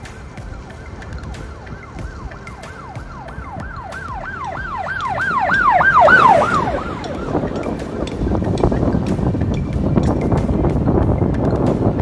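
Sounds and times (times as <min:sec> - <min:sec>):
emergency siren yelp: 0:00.2 - 0:09.1.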